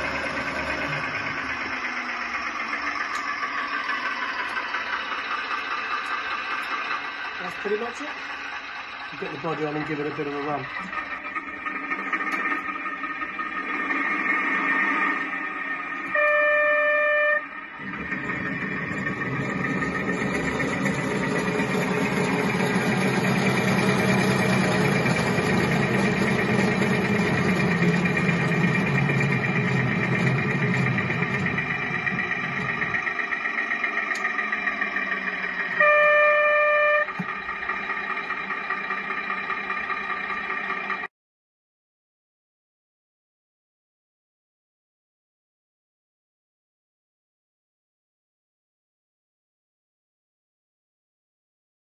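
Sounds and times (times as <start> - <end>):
simulated diesel engine: 0.0 - 41.2
train horn blast: 16.0 - 17.6, 35.7 - 37.2.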